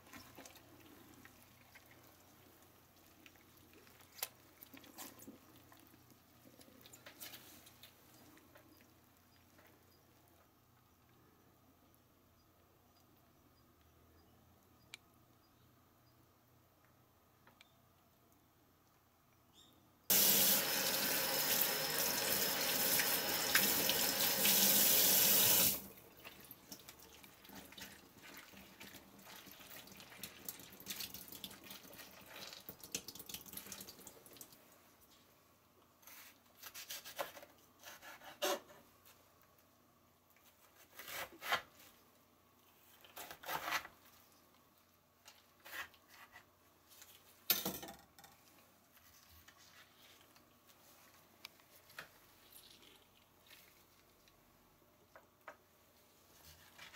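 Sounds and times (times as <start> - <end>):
water dripping into sink: 29.4 - 34.6.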